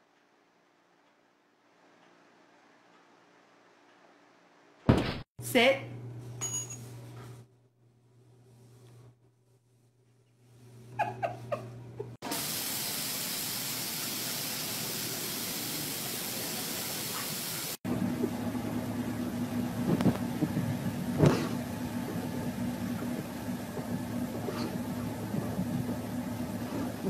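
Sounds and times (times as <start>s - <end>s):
loud hiss: 12.2s - 17.8s
car engine idling: 17.9s - 27.0s.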